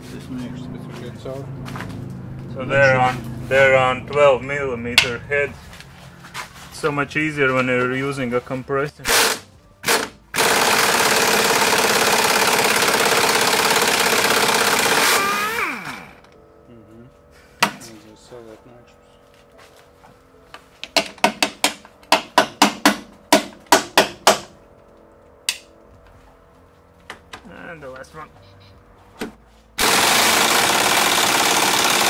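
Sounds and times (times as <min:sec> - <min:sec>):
pneumatic impact wrench hammering: 0:09.1 - 0:16.3, 0:29.8 - 0:32.0.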